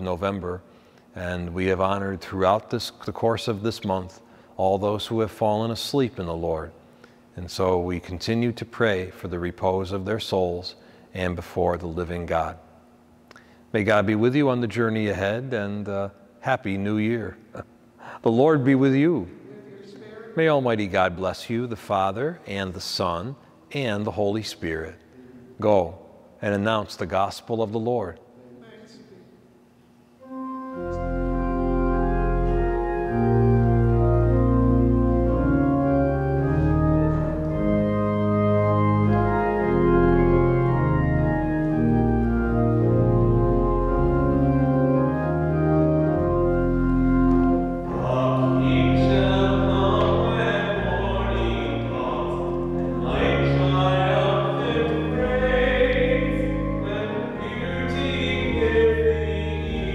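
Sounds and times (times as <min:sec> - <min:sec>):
church organ playing: 0:00.0 - 0:06.7, 0:07.4 - 0:12.6, 0:13.7 - 0:17.4, 0:30.2 - 0:59.9
people singing: 0:47.9 - 0:59.9.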